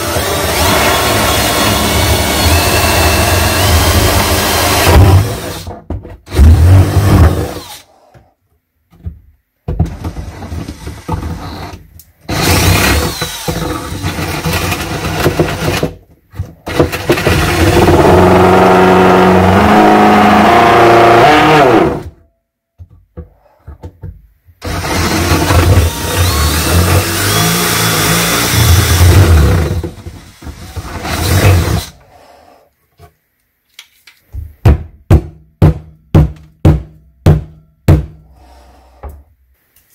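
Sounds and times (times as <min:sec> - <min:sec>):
power saw cutting: 0:24.6 - 0:29.8.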